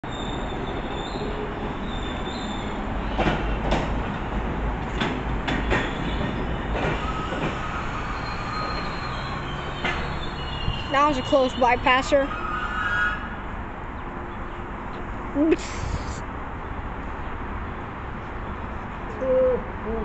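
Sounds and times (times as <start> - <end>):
train wheels rumbling on rails: 0.0 - 11.9
clacks over rail joints: 3.1 - 7.9, 9.7 - 10.9
wheel squeal: 5.8 - 11.1.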